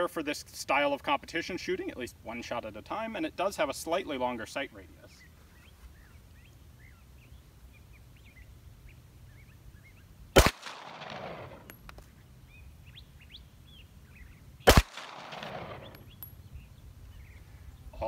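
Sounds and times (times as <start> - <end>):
birds chirping faintly: 1.0 - 10.3, 11.6 - 18.0
pistol shots with echo: 10.4 - 11.8, 14.6 - 16.3.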